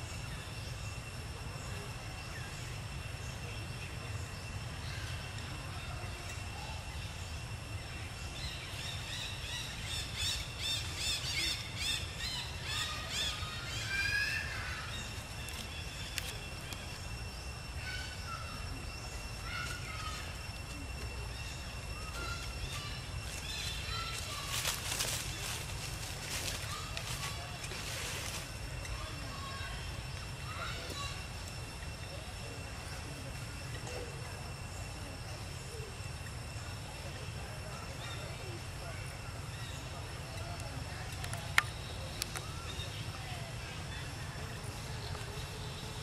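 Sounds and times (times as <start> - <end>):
thin steady high tones: 0.0 - 46.0
high chirping calls: 2.2 - 27.8
crackles: 14.8 - 32.0, 40.4 - 43.2.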